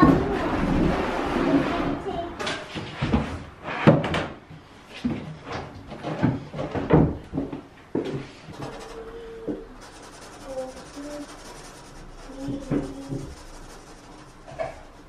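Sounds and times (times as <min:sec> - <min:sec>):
marker pen rubbing on laminate: 0:09.8 - 0:15.0.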